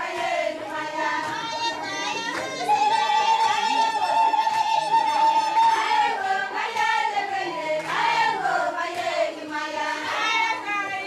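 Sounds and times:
women singing together: 0.0s - 11.0s.

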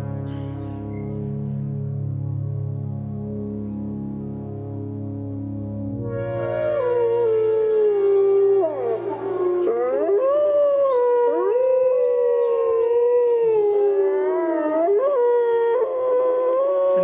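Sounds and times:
wolves howling: 6.3s - 17.0s.

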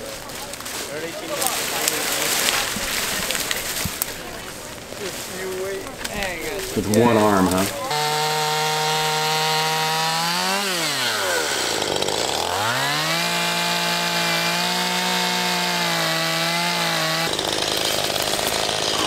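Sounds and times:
chainsaw cutting log: 6.8s - 19.0s.

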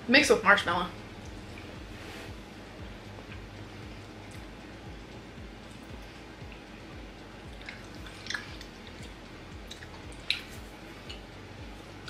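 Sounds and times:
faint chewing: 7.5s - 11.2s.

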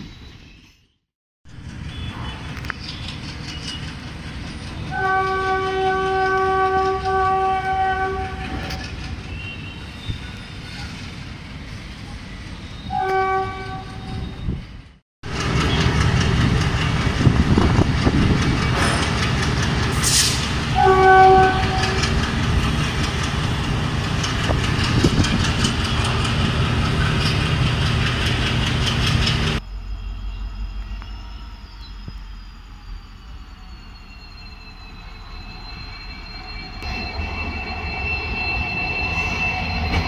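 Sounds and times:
train wheels clattering on rails: 1.5s - 10.4s, 15.3s - 29.6s
train horn blast: 4.9s - 10.0s, 12.9s - 14.4s, 20.3s - 22.2s
locomotive engine running: 20.6s - 29.6s.

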